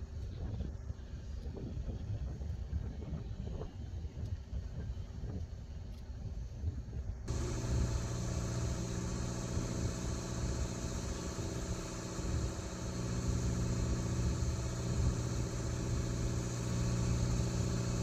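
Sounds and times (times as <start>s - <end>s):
wind on microphone: 0.0s - 18.0s
boat engine idling: 7.3s - 18.0s.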